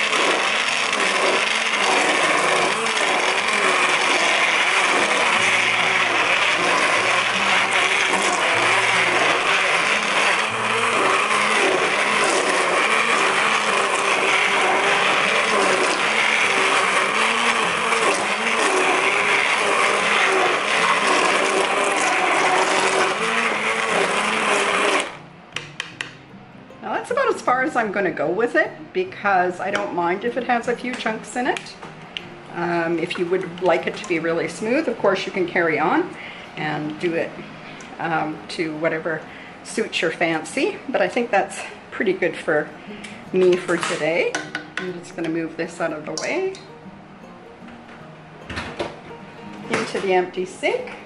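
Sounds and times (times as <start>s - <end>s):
immersion blender running in pot: 0.0s - 25.2s, 32.6s - 36.2s.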